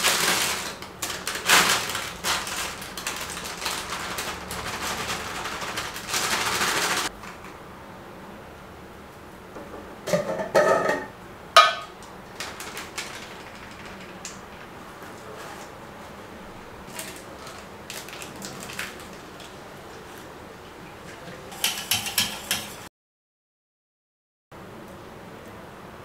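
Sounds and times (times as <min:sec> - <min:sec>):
kitchen utensils clinking: 0:10.1 - 0:12.0, 0:21.0 - 0:22.9.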